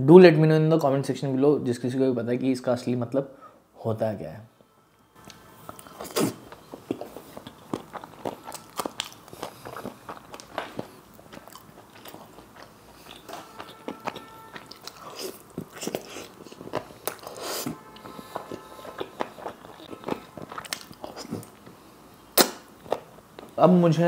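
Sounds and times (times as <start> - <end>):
chewing and crunching: 5.2 - 21.8.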